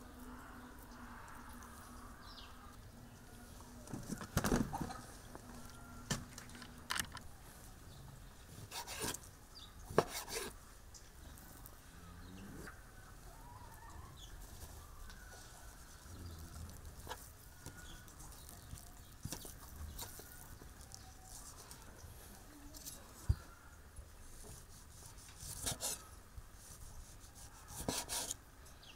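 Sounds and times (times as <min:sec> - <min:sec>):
knife cutting on wooden board: 0:08.7 - 0:09.2, 0:09.9 - 0:10.6, 0:24.5 - 0:26.0, 0:27.6 - 0:28.4.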